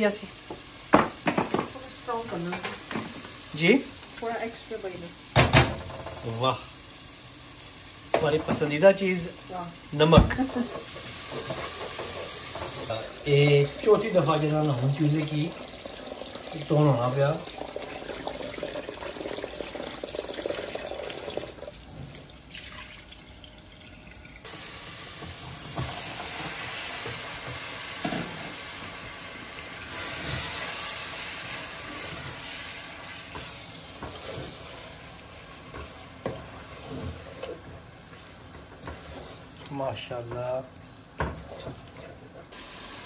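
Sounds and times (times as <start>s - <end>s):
chicken sizzling in oil: 0.0s - 23.7s, 24.4s - 41.6s, 42.5s - 43.0s
tap water running into bowl: 10.0s - 24.5s.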